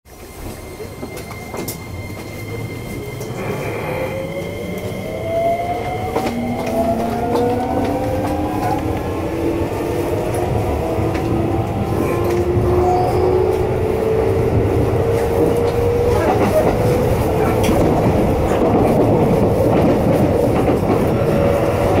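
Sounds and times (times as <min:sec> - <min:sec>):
wheels rumbling on track: 0:00.1 - 0:22.0.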